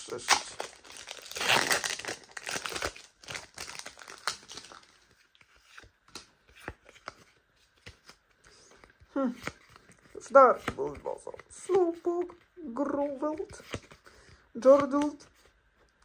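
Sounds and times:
foil wrapper crinkling: 0:00.0 - 0:05.1
cards clicking and tapping: 0:13.0 - 0:15.2.

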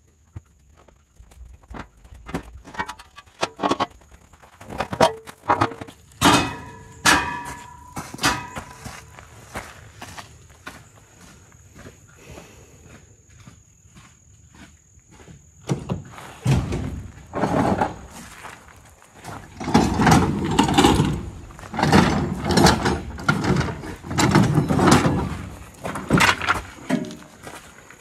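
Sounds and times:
crickets chirping: 0:00.0 - 0:28.0
metal gear clunking and scraping: 0:04.8 - 0:09.1, 0:16.4 - 0:18.3, 0:19.3 - 0:27.5.

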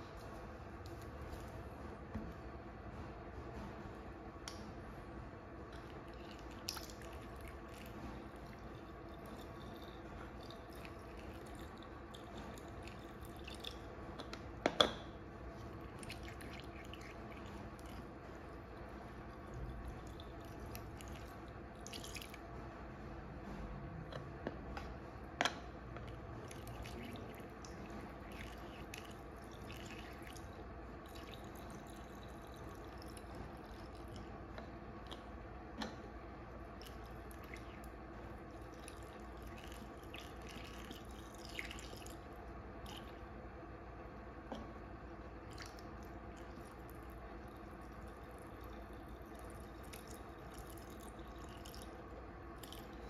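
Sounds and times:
liquid trickling through a funnel: 0:00.0 - 0:01.6, 0:05.7 - 0:14.2, 0:15.2 - 0:22.5, 0:26.0 - 0:35.4, 0:36.5 - 0:43.4, 0:45.3 - 0:53.0
faint steady hum: 0:00.0 - 0:53.0.

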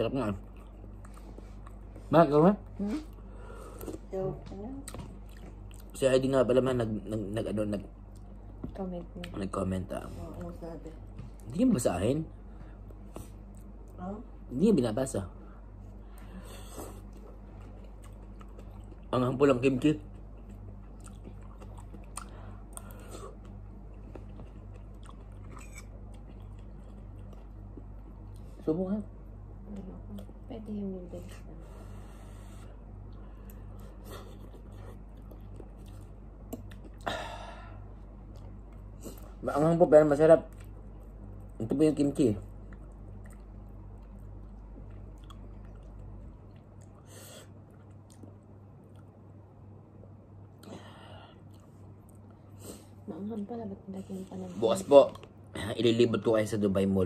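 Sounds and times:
steady low hum: 0:00.0 - 0:57.0
person chewing noodles: 0:00.3 - 0:02.0, 0:03.0 - 0:04.1, 0:04.8 - 0:07.2, 0:16.0 - 0:28.5, 0:32.0 - 0:39.4, 0:42.5 - 0:49.3, 0:50.6 - 0:52.8.

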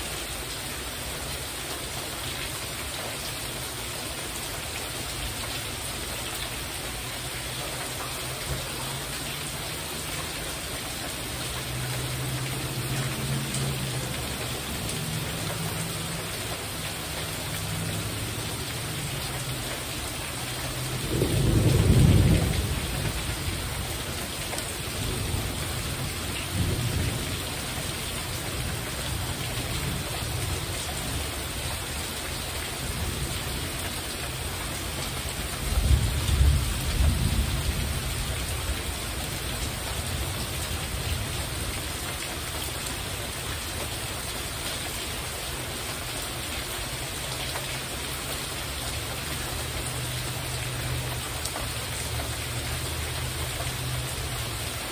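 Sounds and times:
heavy rain on a roof: 0:00.0 - 0:54.9
thunder rumbling: 0:20.8 - 0:24.0.

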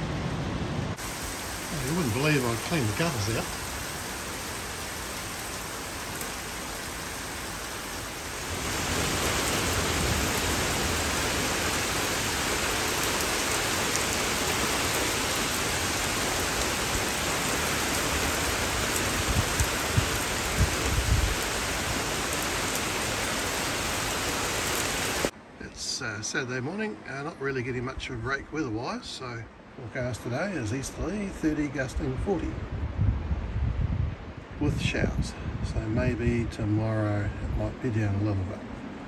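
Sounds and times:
heavy rain: 0:00.0 - 0:26.7
water pouring off roof: 0:01.0 - 0:25.3.

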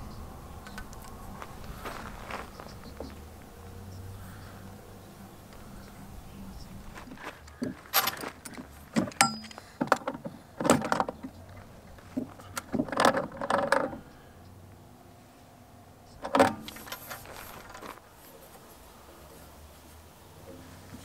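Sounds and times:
metal fitting clinking and clanking: 0:07.9 - 0:11.2.

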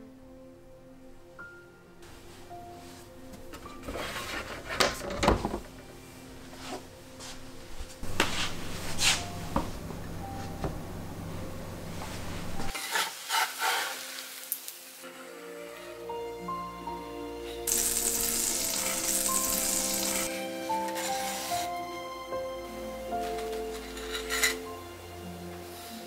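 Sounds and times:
plastic chopping board scraping: 0:03.6 - 0:05.6.

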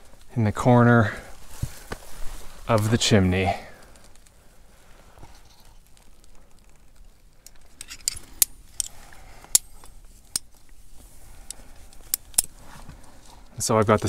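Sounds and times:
metal carabiners clinking: 0:07.4 - 0:10.5.

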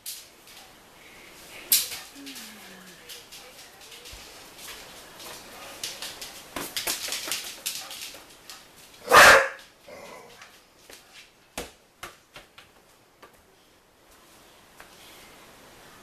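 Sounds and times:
puppy barking: 0:09.0 - 0:09.6.

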